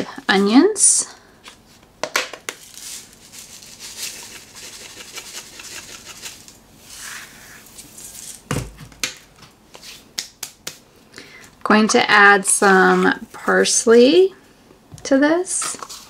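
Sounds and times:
onion flakes rattling in jar: 2.6s - 6.5s.

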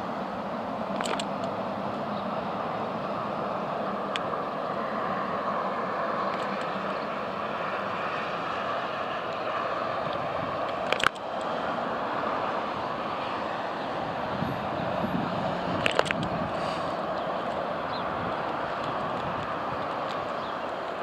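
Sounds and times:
tram running noise: 0.0s - 21.0s
sharp click: 0.9s - 1.6s, 10.6s - 11.5s.

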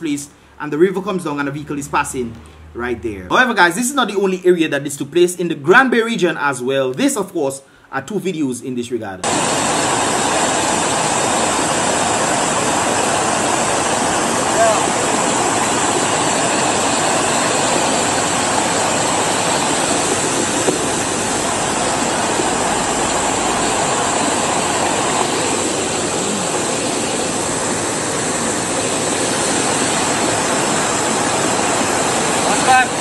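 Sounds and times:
flood water rushing: 9.2s - 33.0s.

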